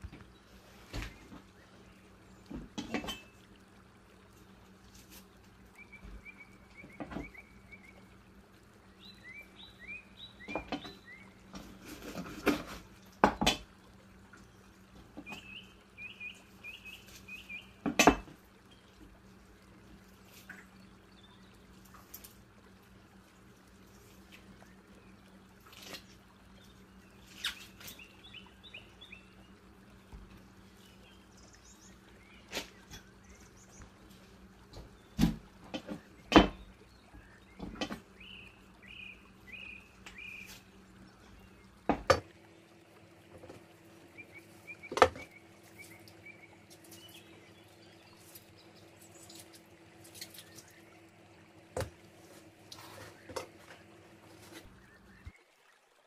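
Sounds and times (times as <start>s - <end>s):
low steady hum: 0.0s - 56.0s
wet squelching and dripping: 31.3s - 55.4s.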